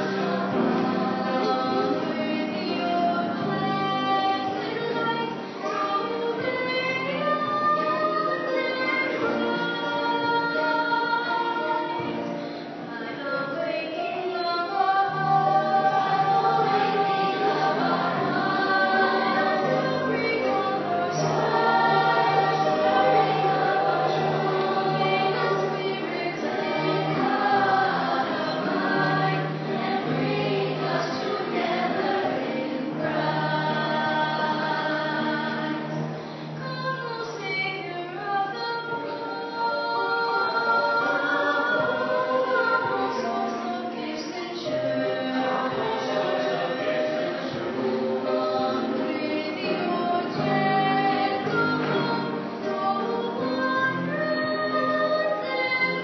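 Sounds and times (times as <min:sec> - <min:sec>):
small choir singing slow song: 0:00.0 - 0:56.0.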